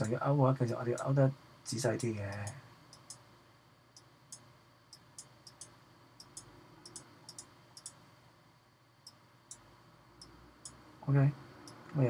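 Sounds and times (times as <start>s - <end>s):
faint computer mouse clicks: 4.0s - 8.0s.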